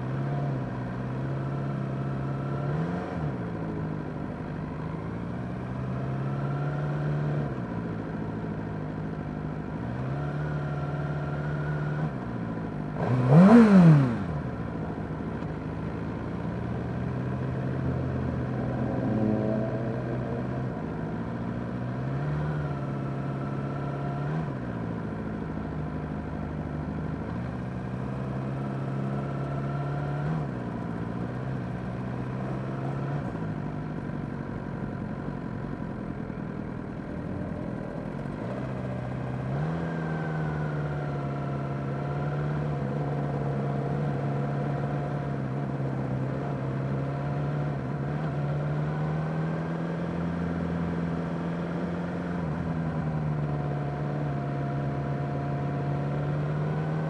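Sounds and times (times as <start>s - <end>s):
motorcycle engine running: 12.1s - 39.5s
engine revving: 13.0s - 14.6s, 17.8s - 24.8s.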